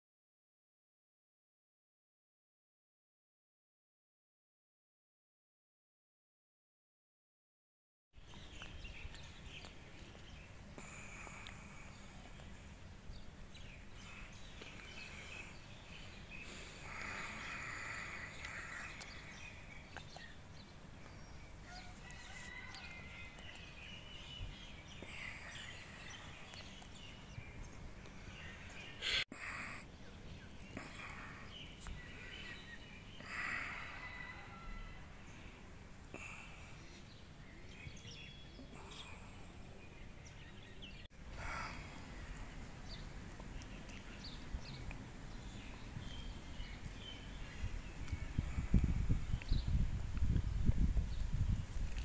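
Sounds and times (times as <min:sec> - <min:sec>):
low background hum: 0:08.2 - 0:34.0
birds chirping: 0:08.2 - 0:52.0.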